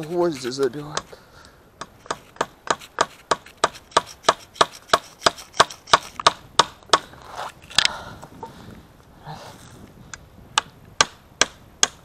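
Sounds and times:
axe hammering nail into wood: 1.8 - 7.0, 10.6 - 12.0.

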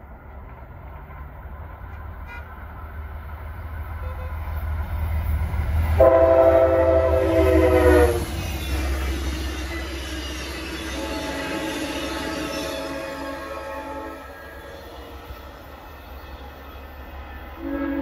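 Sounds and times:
passenger coaches rolling by: 0.0 - 18.0
train horn blast: 2.2 - 2.6, 4.0 - 4.4, 6.0 - 8.4, 10.5 - 15.4, 17.6 - 18.0.

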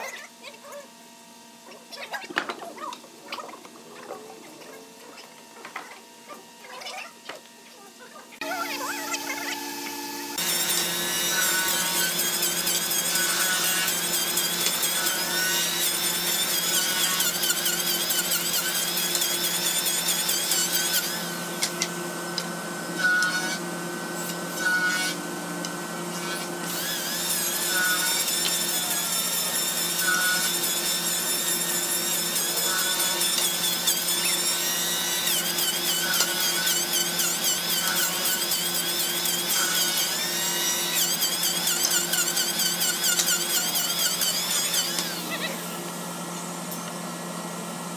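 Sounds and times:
electric hand planer cutting wood: 8.4 - 46.2.

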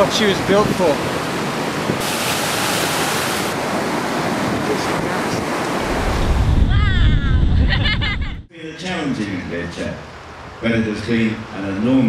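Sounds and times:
wind: 0.0 - 12.0
sea waves breaking at bow: 0.8 - 6.6.

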